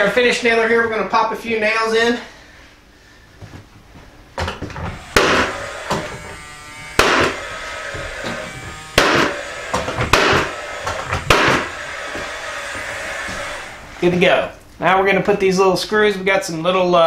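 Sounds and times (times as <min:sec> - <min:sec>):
tool fan whirring: 0:04.3 - 0:14.8
nail gun firing into wood: 0:05.1 - 0:06.4, 0:07.0 - 0:07.4, 0:09.0 - 0:12.3.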